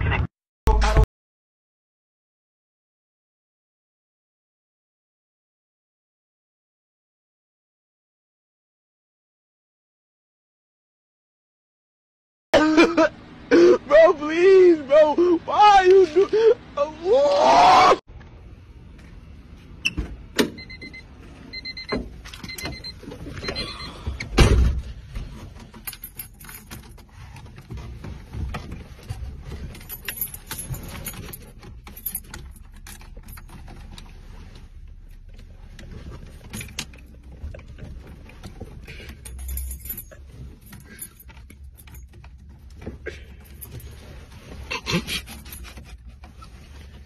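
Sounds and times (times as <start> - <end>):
keys jangling: 25.6 - 27.4, 29.0 - 34.2, 36.3 - 42.8, 43.4 - 44.3, 45.1 - 46.2.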